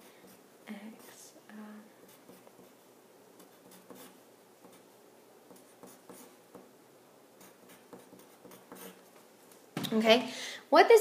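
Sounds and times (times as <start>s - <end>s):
pencil scratching on paper: 2.0s - 2.8s, 3.4s - 4.9s, 5.5s - 6.7s, 7.4s - 9.1s.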